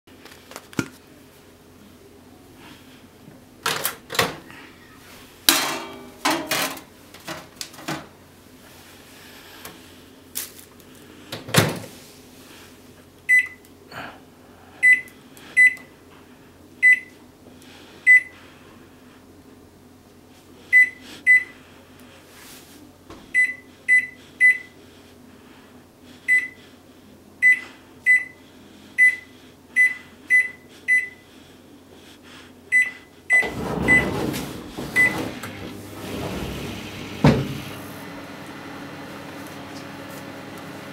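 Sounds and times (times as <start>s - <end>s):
microwave humming: 3.5s - 8.6s, 32.8s - 40.9s
microwave door shutting: 33.4s - 37.8s.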